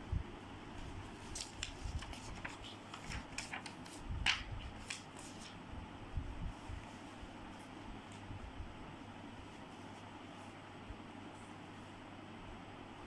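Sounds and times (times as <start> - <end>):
paper sheets rustling: 0.8 - 5.6.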